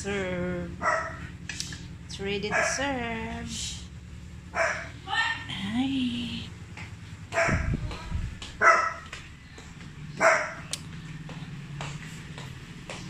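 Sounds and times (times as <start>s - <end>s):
dog barking: 0.8s - 1.3s, 2.5s - 2.9s, 4.5s - 4.9s, 7.3s - 7.8s, 8.6s - 9.1s, 10.2s - 10.7s.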